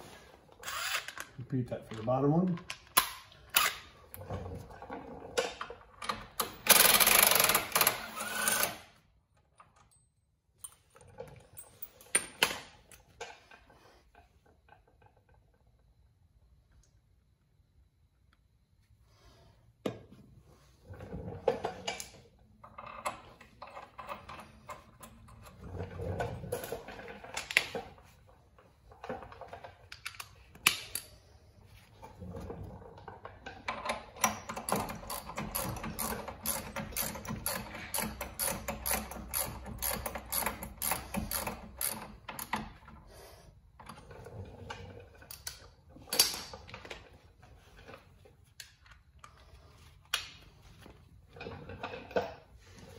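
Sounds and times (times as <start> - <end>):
tools clinking and knocking: 28.9 - 31.2, 33.1 - 43.0
ratchet clicking: 34.6 - 42.5.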